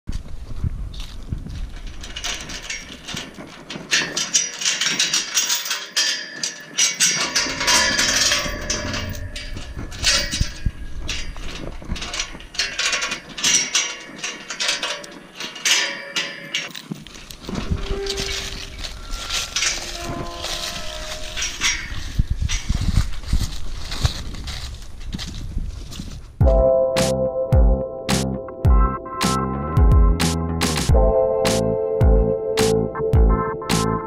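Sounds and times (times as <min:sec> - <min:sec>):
chain rattling against metal gate: 0:01.5 - 0:24.7
metal gate clanking and scraping: 0:01.5 - 0:24.8.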